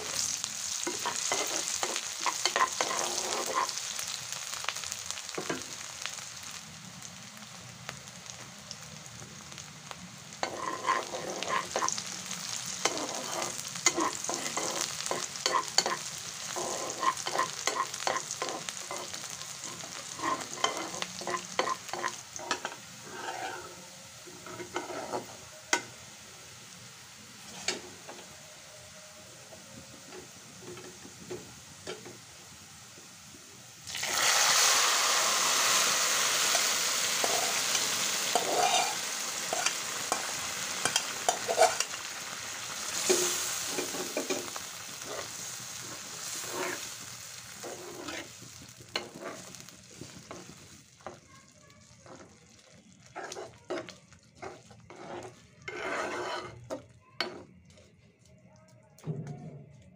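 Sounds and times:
spatula stirring strokes: 0:00.0 - 0:04.2, 0:10.4 - 0:25.9, 0:27.3 - 0:28.2, 0:34.3 - 0:58.2
food sizzling in oil: 0:00.0 - 0:57.9.

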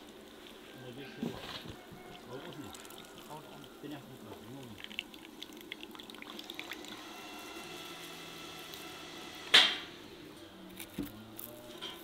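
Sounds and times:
juice dripping into a bowl: 0:00.0 - 0:01.0, 0:01.7 - 0:09.5.

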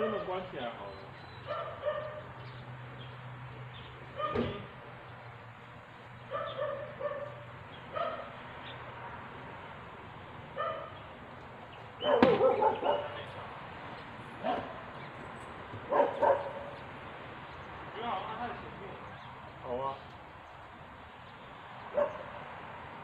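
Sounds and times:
dog barking: 0:01.4 - 0:02.3, 0:04.2 - 0:04.5, 0:06.3 - 0:08.4, 0:10.6 - 0:11.0, 0:12.0 - 0:13.2, 0:14.4 - 0:14.9, 0:15.9 - 0:16.8, 0:21.9 - 0:22.4
sharp knock: 0:12.2 - 0:12.4.

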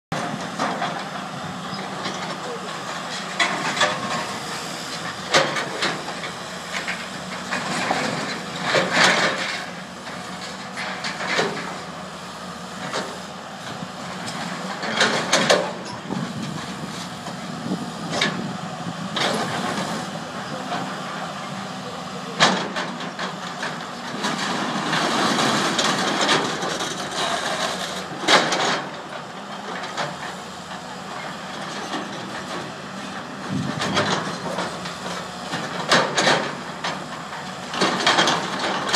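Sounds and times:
excavator engine running: 0:00.1 - 0:38.9
metal and rubble clanking: 0:00.2 - 0:11.9, 0:22.4 - 0:32.6, 0:33.2 - 0:38.9.

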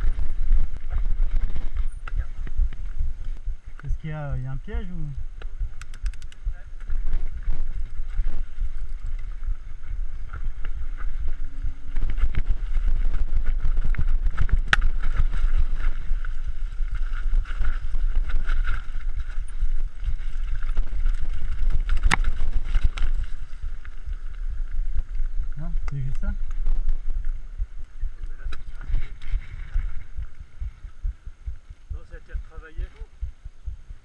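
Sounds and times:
bike rattling: 0:00.0 - 0:31.8
bike tyres rolling on dirt: 0:00.0 - 0:33.1
wind buffeting microphone: 0:00.0 - 0:34.0.

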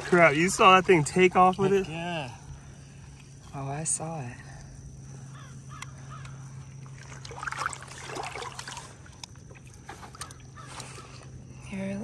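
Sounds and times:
water sloshing and splashing: 0:00.0 - 0:03.5, 0:06.0 - 0:11.4
steady low hum: 0:00.0 - 0:12.0
small clicks and drips: 0:05.7 - 0:11.3.

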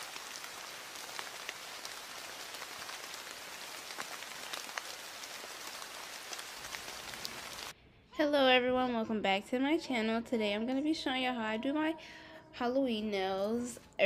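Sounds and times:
steady rain hiss: 0:00.0 - 0:07.7.

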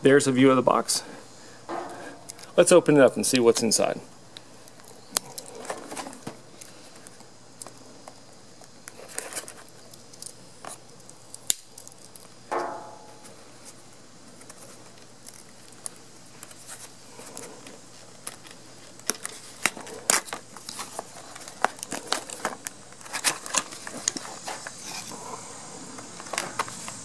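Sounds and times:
packaging rustling and crinkling: 0:04.6 - 0:12.4, 0:13.2 - 0:25.2.

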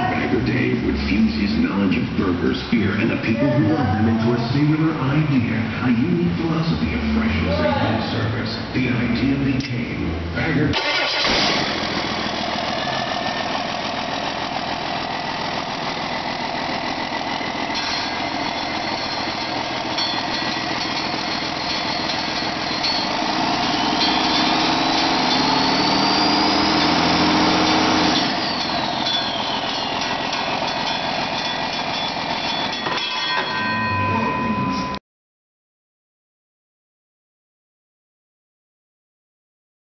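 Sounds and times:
diesel engine idling and revving: 0:00.0 - 0:33.0
turbo whine: 0:11.9 - 0:32.9.

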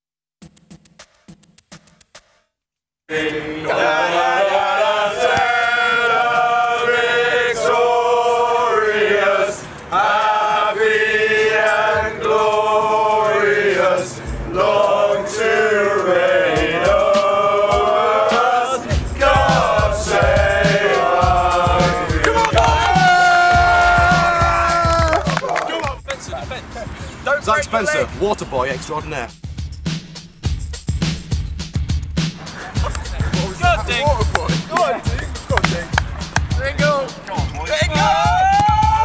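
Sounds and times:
men singing together: 0:03.1 - 0:24.9.

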